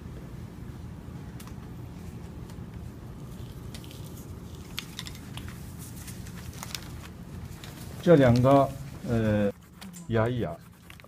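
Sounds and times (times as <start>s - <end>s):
low room hum: 0.0s - 11.0s
faint clicks and rustles: 2.4s - 9.1s.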